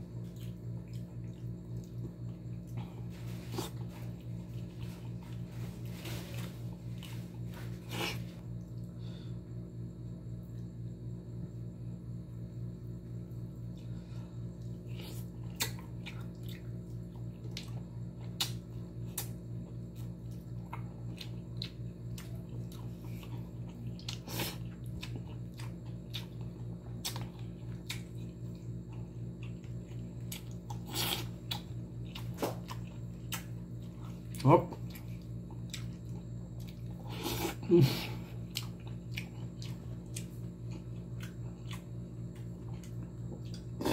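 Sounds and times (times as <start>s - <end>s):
chewing smacks and clicks: 15.5s - 30.8s, 34.3s - 36.9s, 38.4s - 43.8s.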